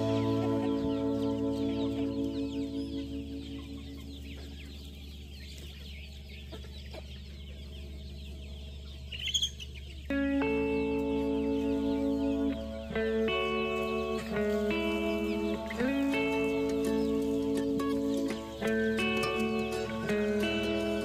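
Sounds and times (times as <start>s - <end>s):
guitar music: 0.0s - 4.6s, 10.1s - 21.0s
chickens clucking: 0.0s - 21.0s
chicken squawk: 8.4s - 21.0s.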